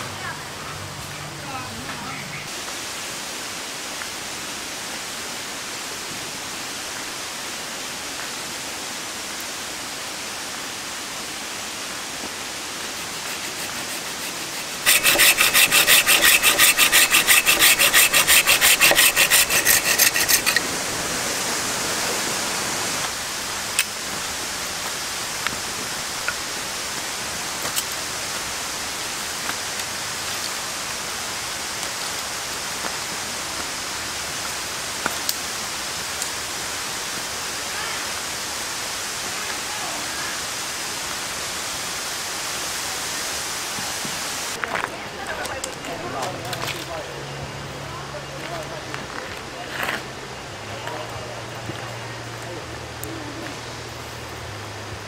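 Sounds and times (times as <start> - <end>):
pruning saw cutting branch: 12.9 - 20.7.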